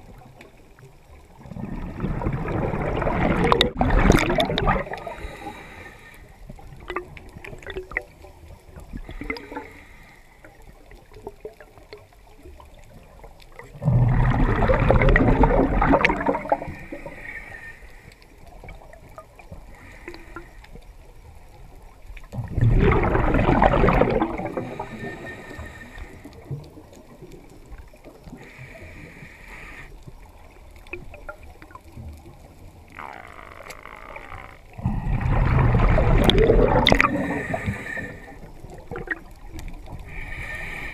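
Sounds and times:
faint clicks: 0.0 - 1.4, 16.0 - 22.4, 24.8 - 34.8, 36.2 - 40.9
exhaled breath bubbling underwater: 1.4 - 8.1, 8.8 - 10.1, 13.7 - 18.0, 22.3 - 27.2, 34.7 - 40.9.

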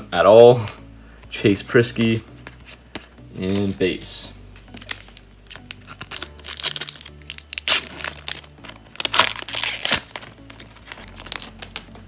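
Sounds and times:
plastic wrapper crinkling and tearing: 4.7 - 12.0.

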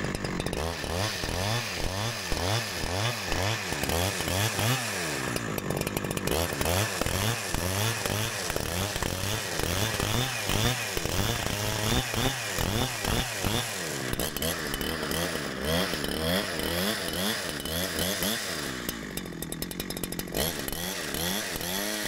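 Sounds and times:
chainsaw cutting log: 0.0 - 22.0.

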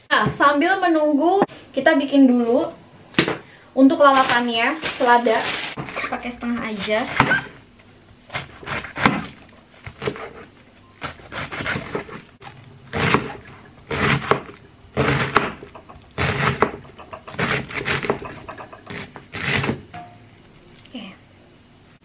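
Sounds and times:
knife slicing lettuce on board: 8.3 - 12.3, 12.9 - 15.6, 16.2 - 18.3, 18.9 - 19.8.

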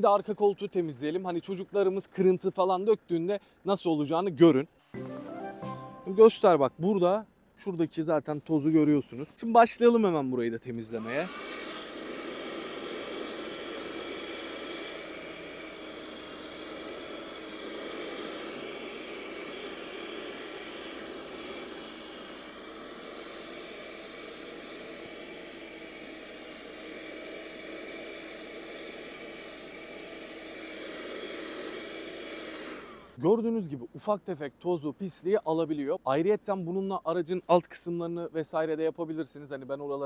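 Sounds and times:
handheld vacuum cleaner whine: 10.8 - 33.2.

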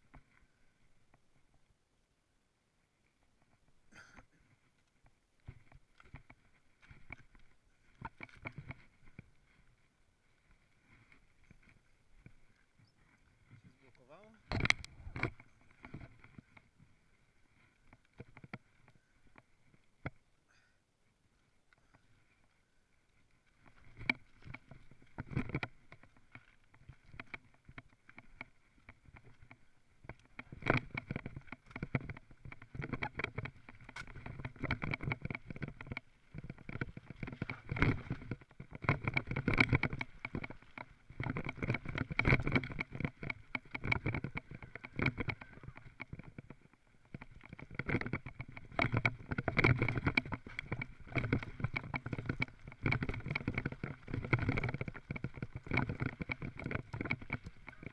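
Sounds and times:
bike tyres on loose dirt and stones: 0.0 - 57.9
bike frame and chain knocking: 23.7 - 57.9.

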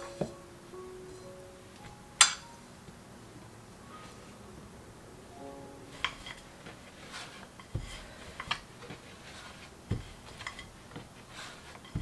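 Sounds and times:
rolling pin on wooden board: 5.9 - 12.0.

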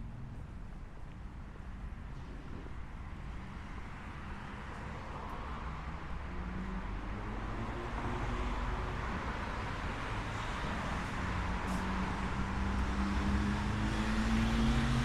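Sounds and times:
low traffic rumble: 0.0 - 15.0
vehicle approaching: 5.7 - 15.0.

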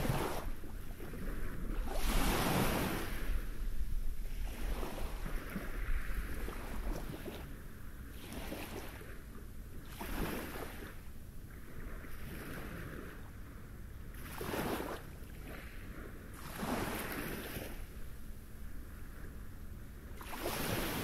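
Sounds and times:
waves lapping on pebble beach: 0.0 - 3.6, 9.9 - 11.0, 14.2 - 15.8, 16.4 - 17.9, 20.2 - 21.0.

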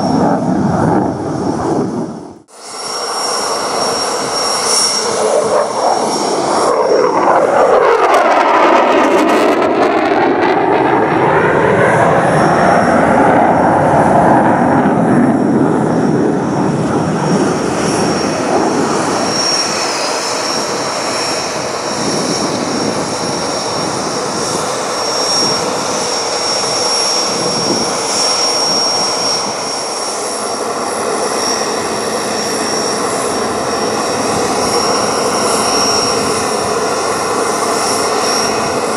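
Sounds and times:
fighter jet flying past: 0.0 - 38.9.

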